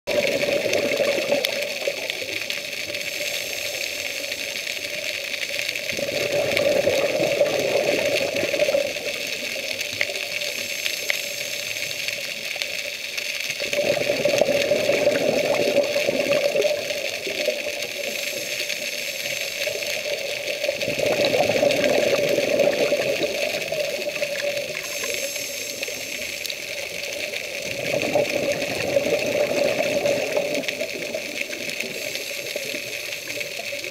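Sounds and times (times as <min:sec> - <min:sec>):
exhaled bubbles underwater: 0:00.1 - 0:33.9
steady underwater hiss: 0:00.1 - 0:33.9
regulator inhale hiss: 0:01.5 - 0:05.9, 0:08.6 - 0:13.5, 0:16.5 - 0:20.8, 0:23.4 - 0:27.6, 0:31.0 - 0:33.7.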